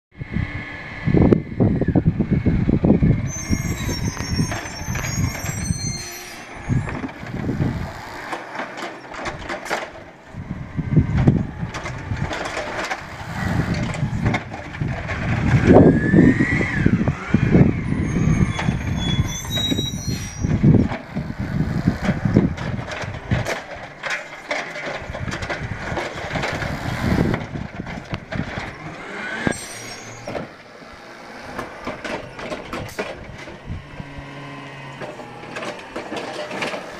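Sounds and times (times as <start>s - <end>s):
diesel truck engine surging: 0.2s - 36.9s
high brake squeals: 3.2s - 7.1s, 15.8s - 20.8s, 29.3s - 30.4s.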